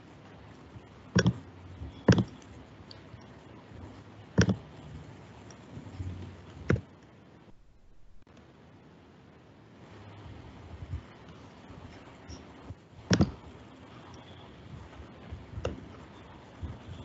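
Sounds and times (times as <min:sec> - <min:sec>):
sharp computer clicks: 0:01.1 - 0:03.3, 0:04.4 - 0:04.7.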